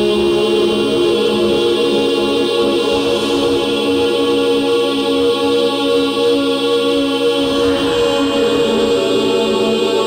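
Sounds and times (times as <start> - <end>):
ambient synthesizer drone music: 7.1 - 10.0.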